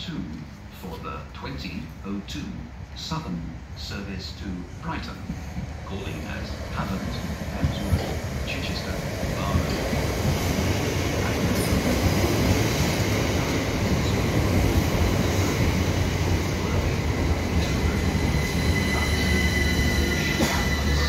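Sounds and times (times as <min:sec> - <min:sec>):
train wheels rumbling on rails: 0:04.6 - 0:21.0.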